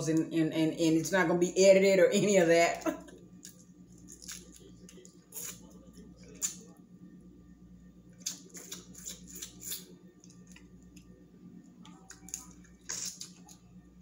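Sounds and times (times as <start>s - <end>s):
low steady hum: 0.0s - 14.0s
eating clicks and crackles: 8.2s - 11.1s, 11.8s - 13.7s.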